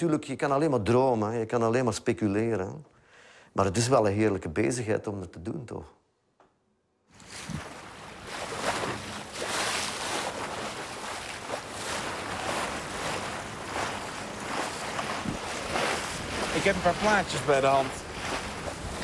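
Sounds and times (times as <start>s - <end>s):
water washing along boat hull: 7.2s - 19.0s
wind on microphone: 7.4s - 19.0s.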